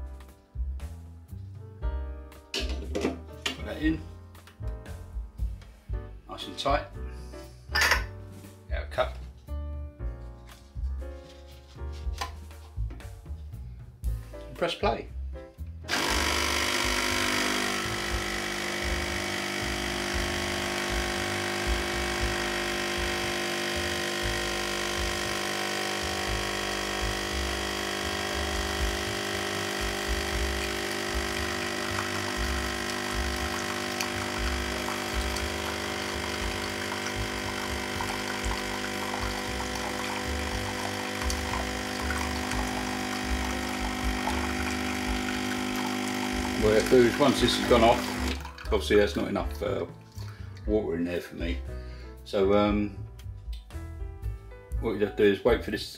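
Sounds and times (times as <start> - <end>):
espresso machine pump buzzing: 15.9 - 48.8.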